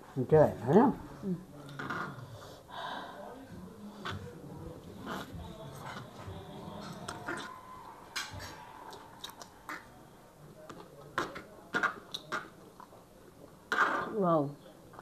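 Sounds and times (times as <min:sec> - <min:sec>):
chewing and mouth smacks: 0:08.9 - 0:09.9.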